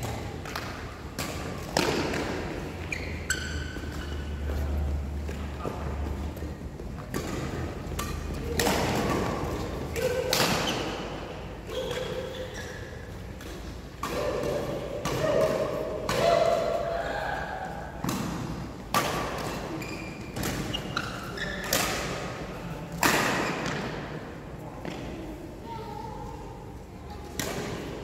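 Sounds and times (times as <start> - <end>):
rackets striking shuttlecock: 0.0 - 12.4, 13.2 - 16.8, 18.0 - 22.3
shoes squeaking on court: 2.6 - 8.4, 10.6 - 13.8, 19.4 - 21.8.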